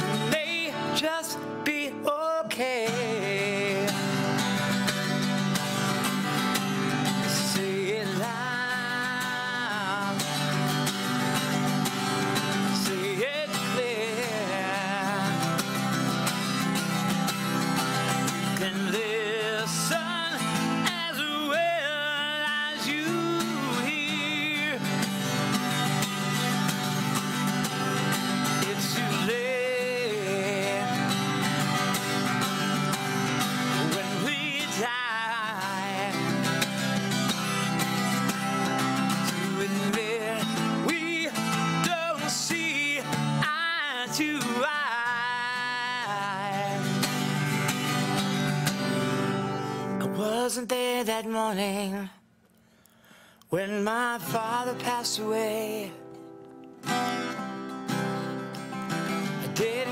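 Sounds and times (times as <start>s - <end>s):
person singing wordless melody: 0.0s - 4.4s, 7.1s - 10.7s, 12.4s - 16.7s, 17.9s - 25.5s, 28.3s - 31.5s, 33.1s - 37.1s, 39.1s - 47.6s, 53.4s - 56.2s, 59.2s - 59.9s
acoustic guitar strumming: 0.0s - 59.9s.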